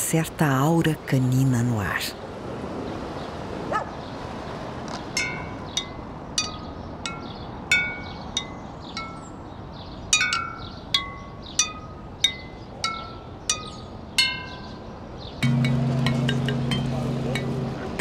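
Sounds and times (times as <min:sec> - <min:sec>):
wind chimes ringing: 0:05.2 - 0:09.4, 0:10.1 - 0:18.0.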